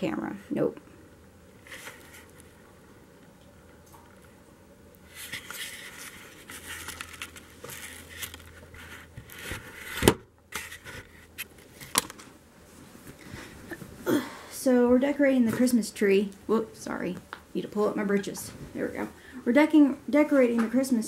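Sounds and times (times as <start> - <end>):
camcorder handling rustling: 5.3 - 12.2.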